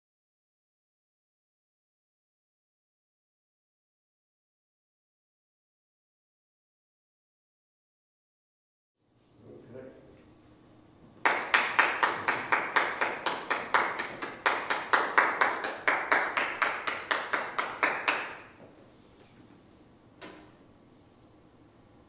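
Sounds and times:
audience clapping: 11.2s - 18.6s.

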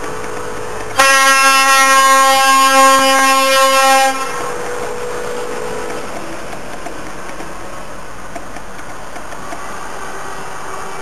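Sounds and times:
truck air horn blast: 1.0s - 4.6s.

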